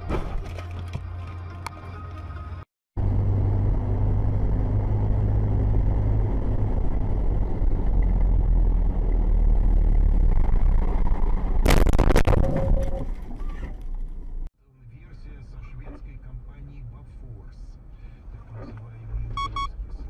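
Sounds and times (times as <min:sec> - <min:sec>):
truck engine and road rumble: 0:00.0 - 0:20.0.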